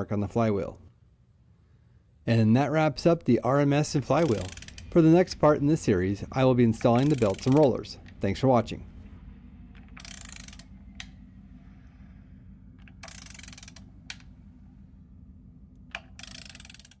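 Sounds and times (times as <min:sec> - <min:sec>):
faint steady hum: 0:00.0 - 0:17.0
ratchet wrench clicking: 0:04.2 - 0:05.0, 0:06.8 - 0:07.7, 0:10.0 - 0:11.1, 0:12.8 - 0:14.3, 0:15.9 - 0:17.0.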